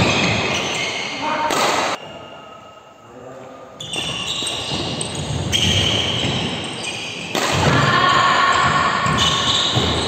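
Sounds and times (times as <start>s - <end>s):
racket hitting shuttlecock: 1.4s - 2.0s, 7.2s - 10.0s.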